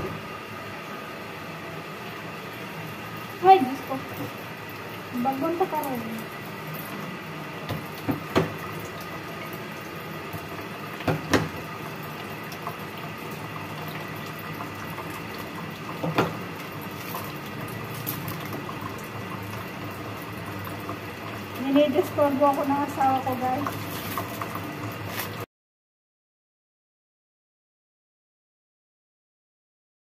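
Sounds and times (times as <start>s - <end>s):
tap running into steel sink: 7.6s - 8.7s, 11.0s - 11.7s, 15.9s - 16.5s.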